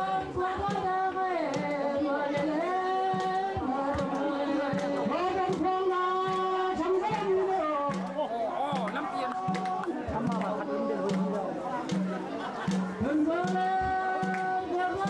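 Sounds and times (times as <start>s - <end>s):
voices singing slow chant: 0.0s - 8.3s, 9.1s - 12.0s
drum beats: 0.0s - 15.0s.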